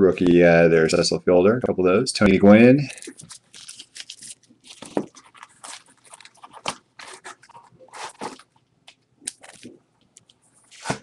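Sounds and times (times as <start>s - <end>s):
plastic card sleeves rustling: 2.9s - 11.0s.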